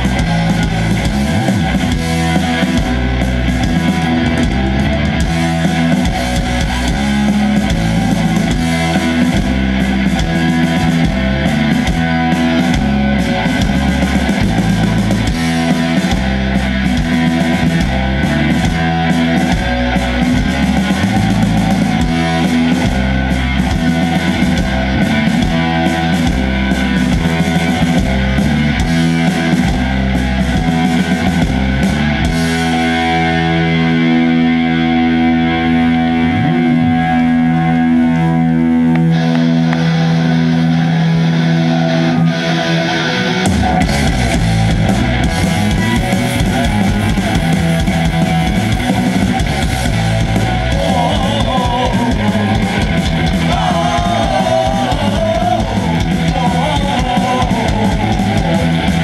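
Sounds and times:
distorted electric guitar: 0.0s - 59.0s
live rock band: 0.0s - 59.0s.

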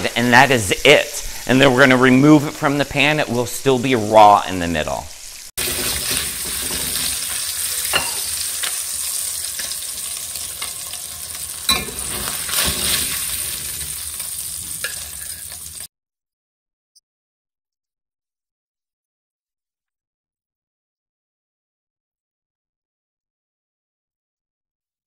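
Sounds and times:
fish sizzling in a pan: 5.1s - 15.9s
metal spatula scraping pan: 5.6s - 11.0s, 11.6s - 15.8s.

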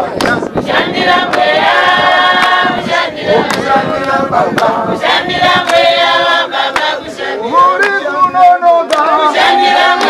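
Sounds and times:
sharp hand claps: 0.2s - 0.4s, 7.8s - 9.2s
women singing a hymn: 0.5s - 7.6s, 9.0s - 10.0s.

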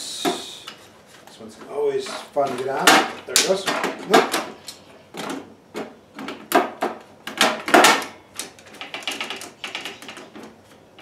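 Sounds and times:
plastic and metal clacks and rattles: 2.0s - 10.6s.

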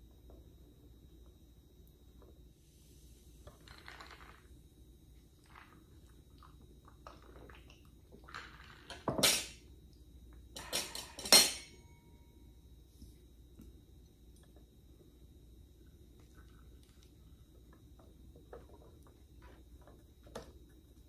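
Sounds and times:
metal dishes clinking and clattering: 8.9s - 9.6s, 10.6s - 11.9s.

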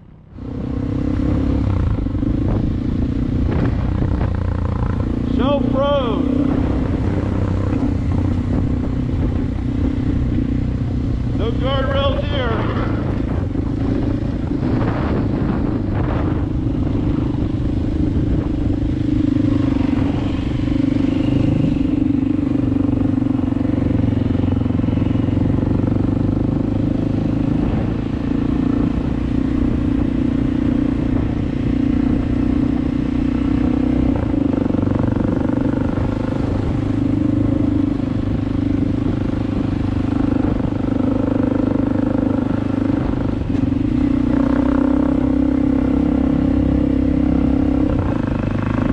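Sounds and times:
dirt bike engine running: 0.0s - 48.9s.

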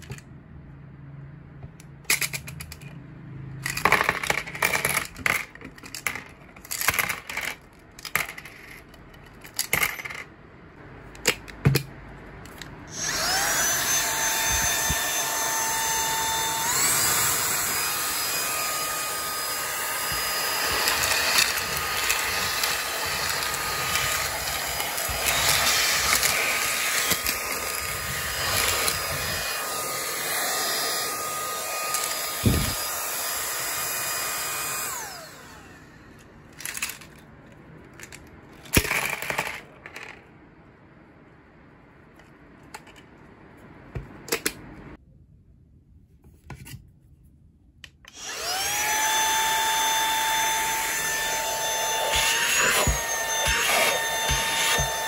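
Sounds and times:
coins and screws clattering: 3.6s - 10.3s
handheld vacuum motor whining: 12.9s - 37.0s, 48.1s - 55.0s.

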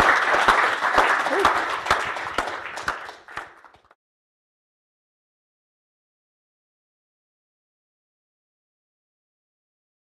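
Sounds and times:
audience applauding: 0.0s - 4.0s.

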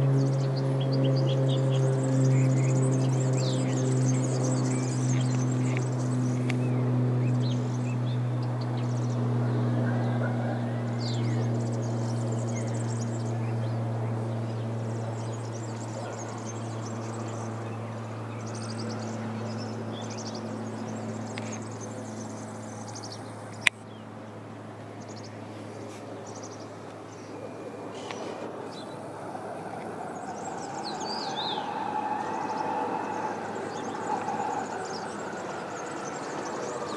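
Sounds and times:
engine hum: 0.0s - 36.9s
propeller aircraft droning: 0.0s - 36.9s
small birds chirping: 0.0s - 36.9s.

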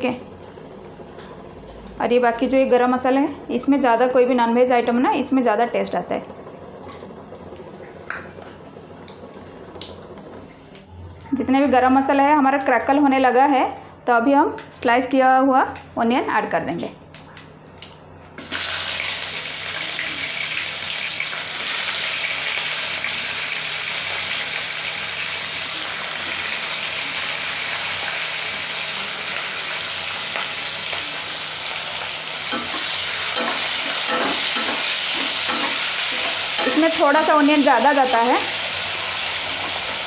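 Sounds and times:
onions sizzling in hot oil: 18.4s - 40.0s.

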